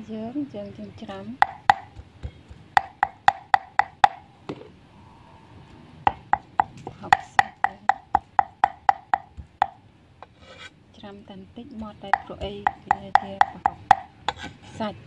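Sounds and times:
cleaver chopping on wooden board: 1.4s - 4.2s, 6.1s - 9.8s, 11.8s - 14.4s.

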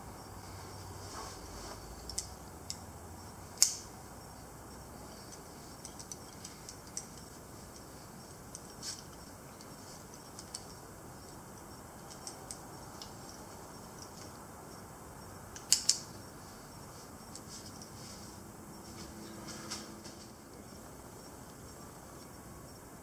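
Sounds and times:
metal carabiners clinking: 5.1s - 14.3s
carabiner gates clicking: 5.2s - 7.9s, 15.6s - 16.1s.

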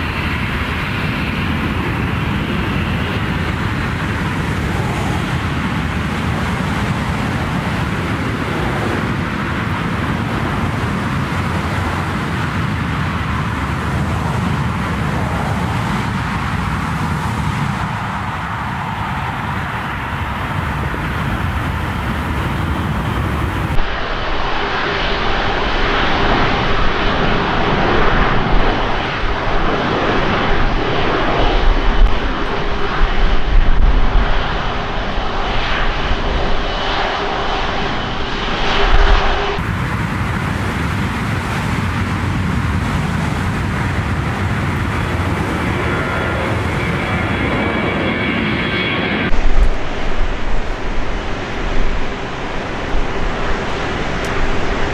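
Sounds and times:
jet engines at takeoff power: 0.0s - 54.9s
jet engines rumbling: 0.0s - 54.9s
jet climbing out: 43.9s - 54.9s.

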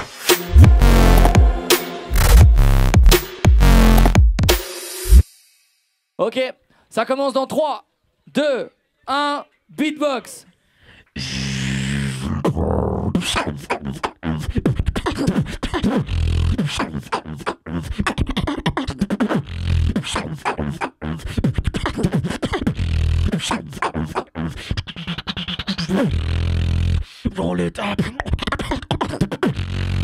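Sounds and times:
deep held beatbox bass tones: 0.0s - 5.2s, 11.2s - 27.1s, 28.0s - 30.0s
beatbox hits and clicks: 0.0s - 5.4s, 13.1s - 27.1s, 28.0s - 30.0s.

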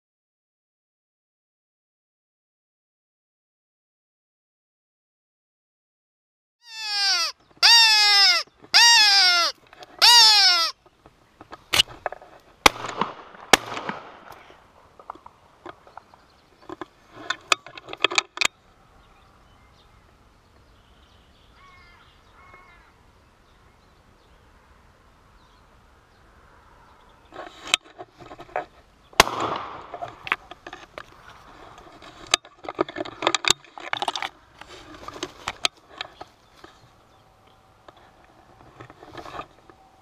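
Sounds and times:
crow cawing: 6.6s - 10.8s, 21.5s - 23.0s
loud sharp crack: 12.6s - 14.5s, 29.2s - 30.0s
shotgun clattering and knocking: 15.0s - 18.5s, 32.2s - 34.4s.

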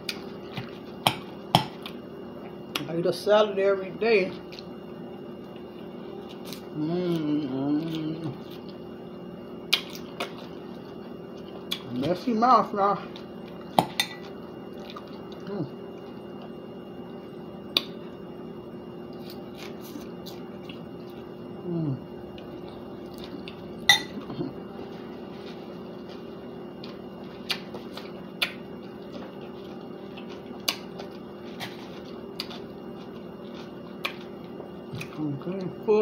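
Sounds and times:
steady background hum: 0.0s - 36.0s
person humming low: 6.8s - 8.4s, 21.6s - 22.2s.

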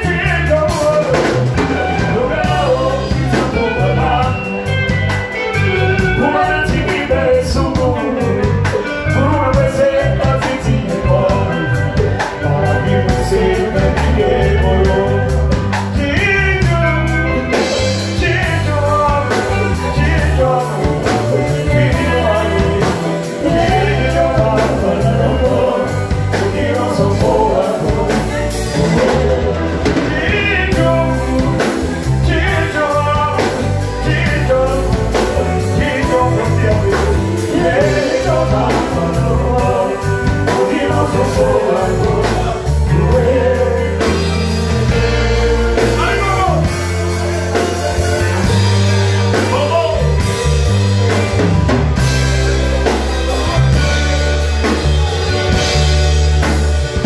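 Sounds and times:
song with singing over a beat: 0.0s - 57.0s.

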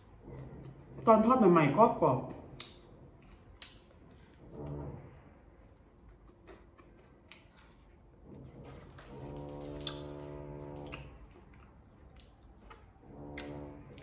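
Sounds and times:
crunchy chewing: 2.5s - 14.0s
closed-mouth hum: 8.2s - 14.0s.

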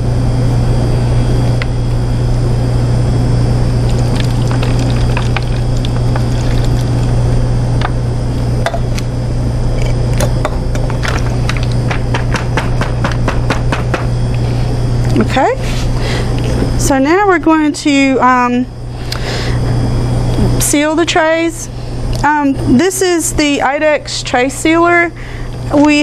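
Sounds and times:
loud low machine hum: 0.0s - 26.0s
water pouring from a bottle: 3.8s - 7.2s.

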